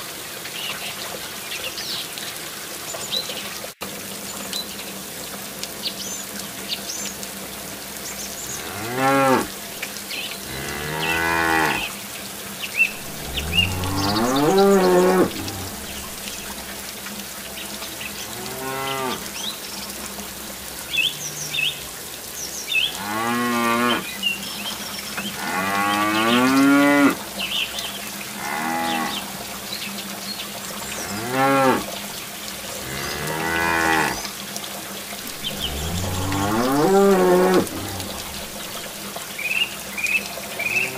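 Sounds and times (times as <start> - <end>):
fountain water trickling: 0.0 - 40.9
cow mooing: 8.5 - 9.6, 10.4 - 11.9, 12.9 - 16.6, 28.4 - 29.3, 32.8 - 34.2, 35.3 - 39.0.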